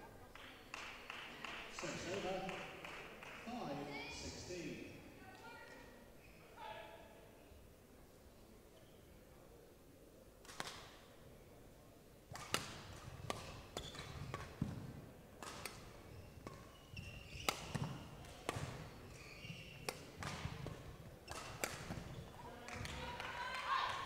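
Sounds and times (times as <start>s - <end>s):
court shoes squeaking: 6.2s - 6.5s, 12.4s - 23.0s
racket hitting shuttlecock: 12.3s - 23.0s.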